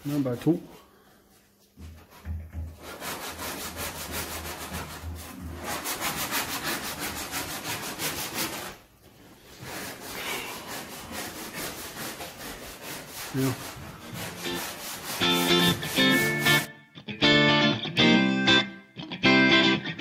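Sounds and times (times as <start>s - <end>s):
hand sanding car body panel: 2.8s - 8.8s, 9.5s - 16.7s.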